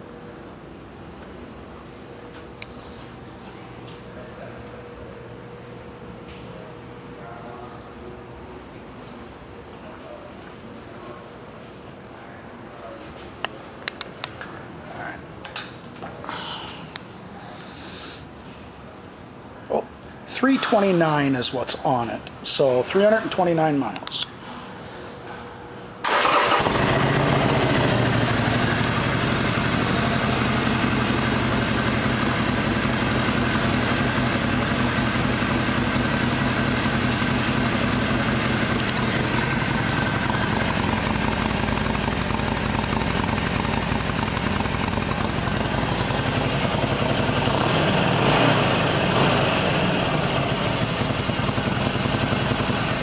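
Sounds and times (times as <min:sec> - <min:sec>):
motorcycle engine idling: 0:26.6 - 0:53.0.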